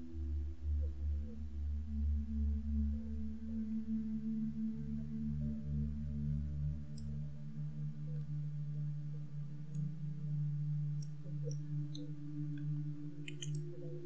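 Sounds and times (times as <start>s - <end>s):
steady low hum: 0.0s - 14.0s
computer mouse clicking: 13.2s - 13.7s.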